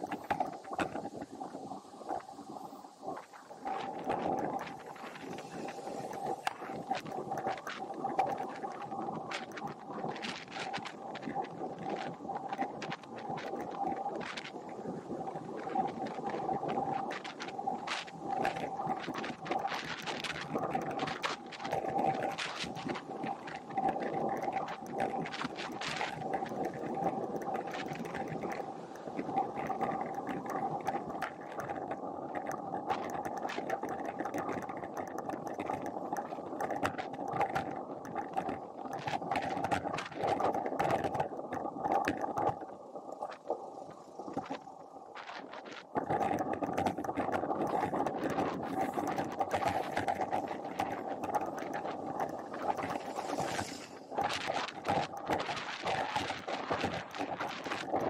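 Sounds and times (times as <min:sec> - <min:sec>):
bicycle tyre noise: 0:43.8 - 0:57.4.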